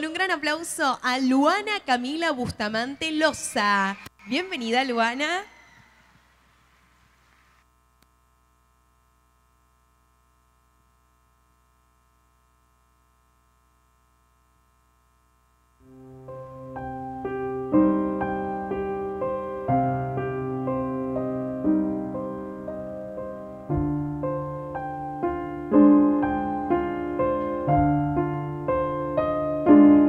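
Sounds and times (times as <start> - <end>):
piano music: 15.9 - 30.0.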